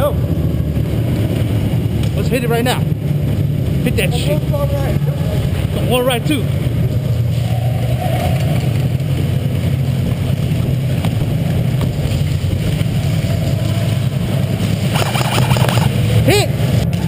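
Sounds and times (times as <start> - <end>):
muffled low rumble: 0.0 - 15.9.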